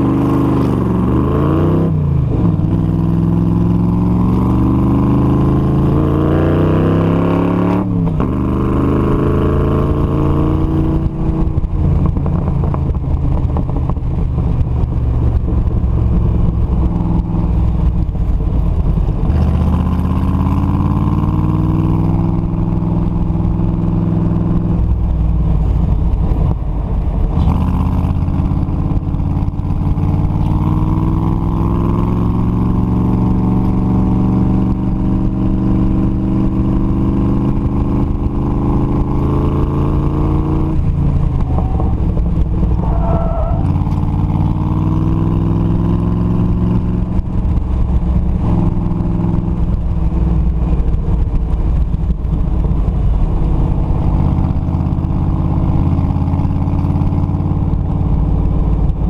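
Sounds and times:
car engine revving: 0.0 - 59.0
wind noise: 0.0 - 59.0.

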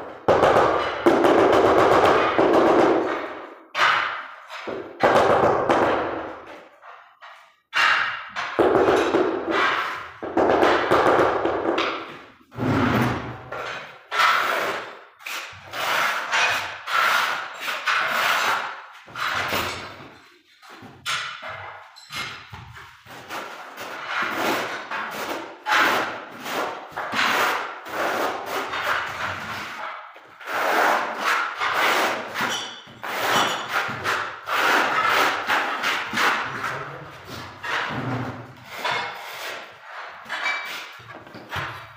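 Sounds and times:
trowel scraping tile adhesive: 12.6 - 41.9.

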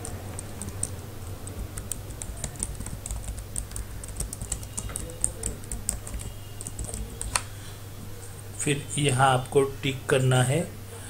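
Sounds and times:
keyboard key clicks: 0.0 - 7.5
low steady hum: 0.0 - 11.0.

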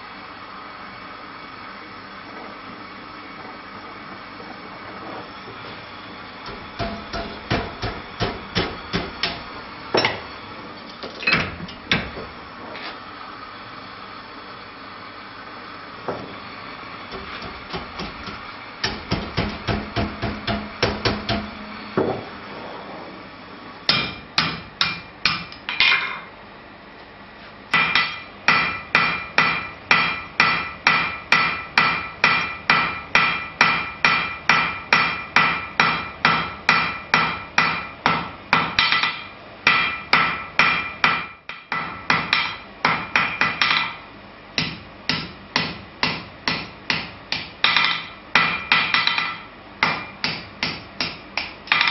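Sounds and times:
hammer striking steel on anvil: 6.5 - 9.4, 23.9 - 26.3, 27.7 - 44.0, 44.6 - 51.9.

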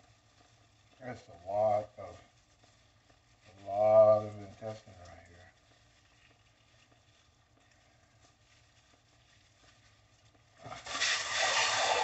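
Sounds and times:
running water rushing: 10.8 - 12.0.

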